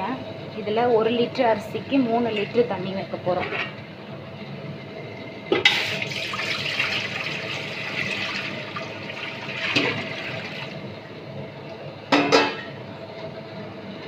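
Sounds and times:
water splashing into metal pot: 5.6s - 10.8s.

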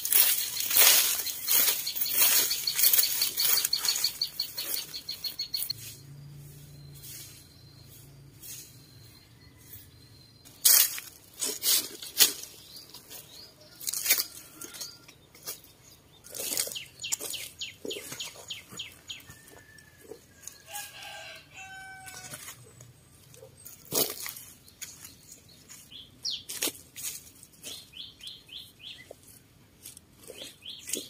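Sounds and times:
birds calling: 0.0s - 29.3s, 30.2s - 31.0s
shell scraping through compost: 10.4s - 28.0s.

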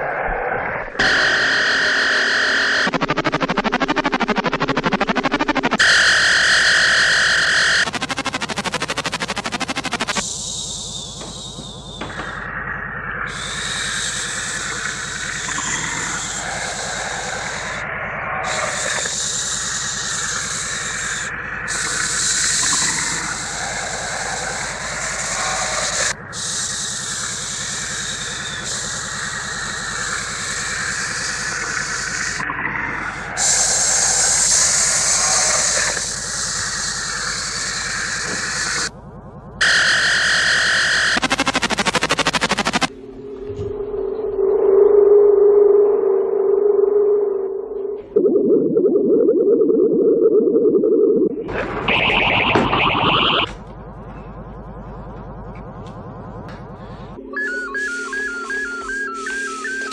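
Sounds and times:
sweeping sci-fi hiss: 5.8s - 38.9s.

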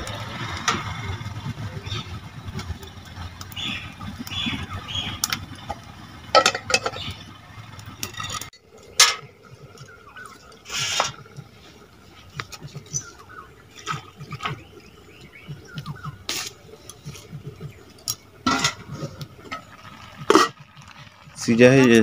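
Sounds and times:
steel utensils clinking: 6.3s - 7.1s, 8.0s - 9.2s.

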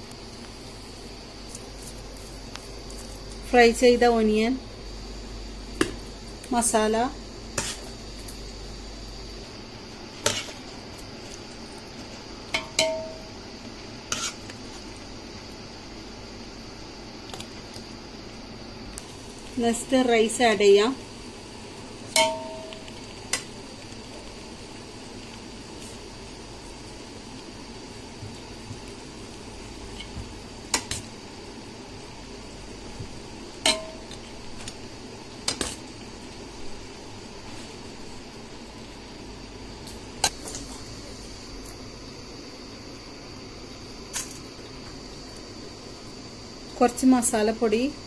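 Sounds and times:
low hiss: 0.0s - 48.0s
utensils clinking against cookware: 12.5s - 13.2s, 33.7s - 34.2s.

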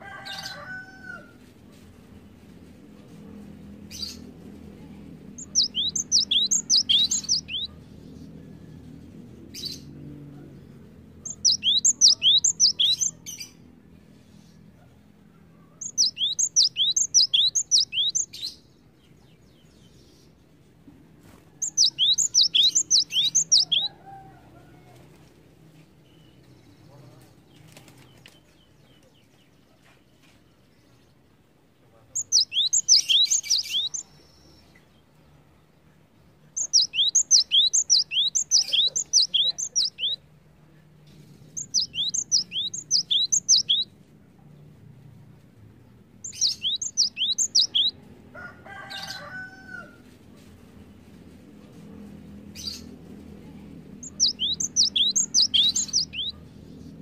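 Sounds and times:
lower bird call: 5.4s - 7.8s, 11.3s - 13.2s, 15.8s - 18.4s, 21.6s - 24.1s, 32.2s - 34.1s, 36.6s - 40.2s, 41.6s - 43.8s.

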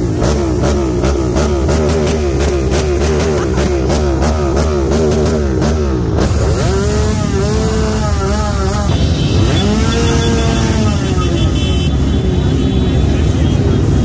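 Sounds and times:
motorcycle engines revving: 0.0s - 14.0s
motorcycles idling rumble: 0.0s - 14.0s.

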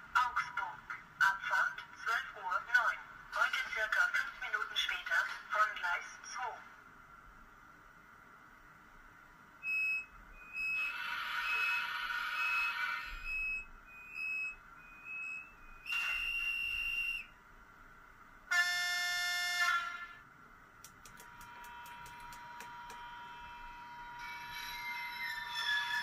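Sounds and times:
multi-tone train horn: 18.5s - 20.3s.

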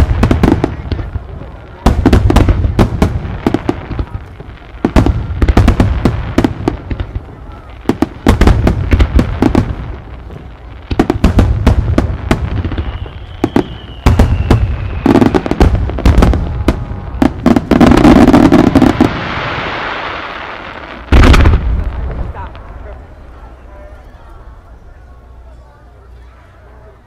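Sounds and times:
dense firework hiss: 0.0s - 22.8s
fireworks bursting with sharp bangs: 0.0s - 23.4s
falling firework whistle: 12.5s - 20.3s.

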